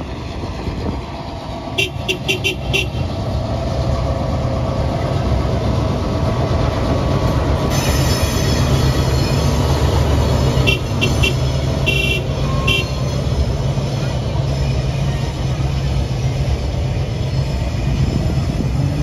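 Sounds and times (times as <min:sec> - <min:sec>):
diesel locomotive engine rumble: 0:00.0 - 0:19.0
train wheels on rails: 0:00.0 - 0:19.0
high wheel squeals: 0:07.7 - 0:16.4.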